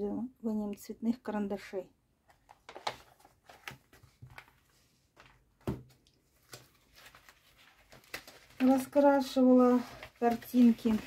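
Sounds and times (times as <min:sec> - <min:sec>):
paper book rustling: 0:02.3 - 0:11.0
book thumping down: 0:05.2 - 0:06.6.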